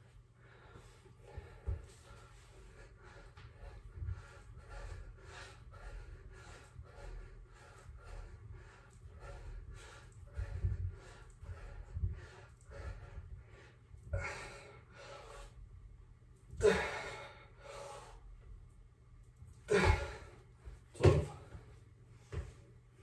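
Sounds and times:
man breathing out hard: 19.7s - 20.4s.

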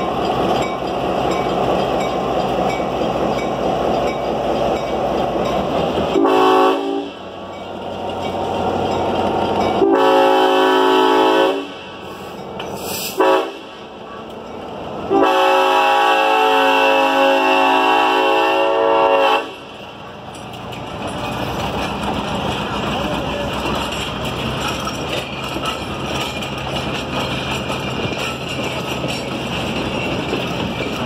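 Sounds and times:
locomotives rumbling past: 0.0s - 31.0s
locomotive air horn blasts: 6.1s - 7.2s, 9.8s - 11.8s, 13.1s - 13.8s, 15.1s - 19.7s.

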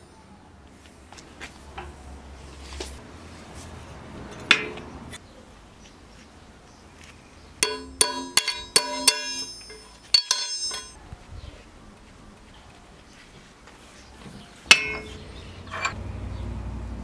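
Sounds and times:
hammer striking metal punch: 7.6s - 11.0s, 14.7s - 16.0s.

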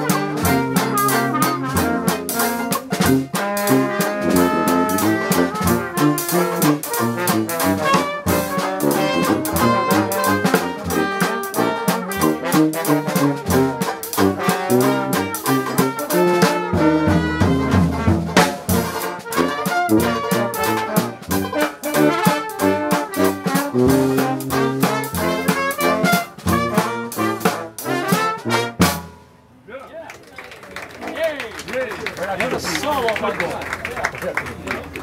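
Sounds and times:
strummed banjo: 0.0s - 29.0s
brass horn: 0.0s - 29.4s
jazz band playing: 0.0s - 29.6s.

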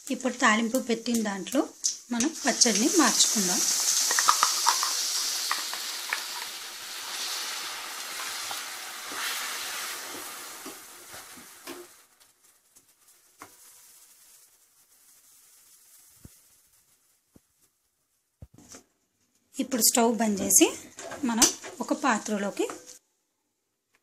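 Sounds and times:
chutney sizzling in hot oil: 0.0s - 17.4s, 19.7s - 23.0s
ladle clicking against pan: 3.9s - 6.5s.

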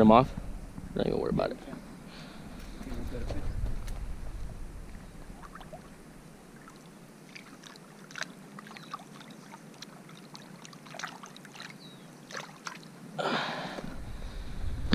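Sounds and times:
water splashes and drips: 4.9s - 13.0s.

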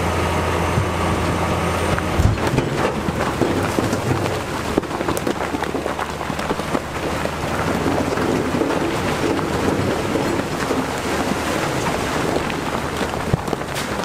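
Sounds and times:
bulldozer engine rumble: 0.0s - 14.0s
crackle of earth being pushed: 0.8s - 14.0s.

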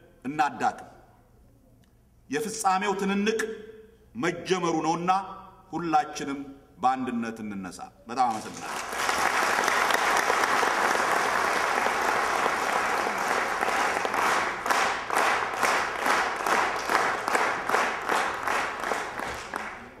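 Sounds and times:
rhythmic clapping in unison: 8.2s - 20.0s
audience applauding: 8.3s - 20.0s.

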